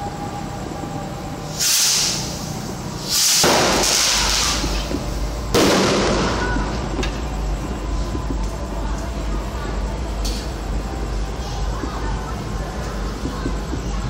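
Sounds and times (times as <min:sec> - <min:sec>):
fireworks bursting: 0:01.5 - 0:08.7.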